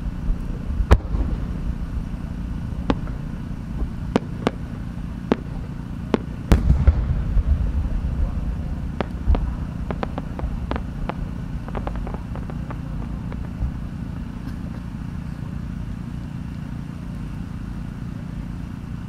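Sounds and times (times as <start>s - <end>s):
low rumble: 0.0s - 16.0s
firework pops: 0.4s - 1.6s, 2.8s - 8.3s, 8.9s - 15.0s.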